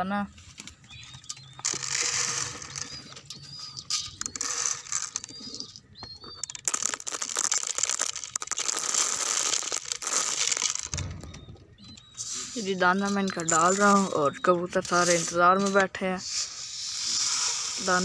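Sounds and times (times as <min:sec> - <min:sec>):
grain pouring onto gravel: 0:01.6 - 0:02.8, 0:06.6 - 0:11.0, 0:16.4 - 0:18.0.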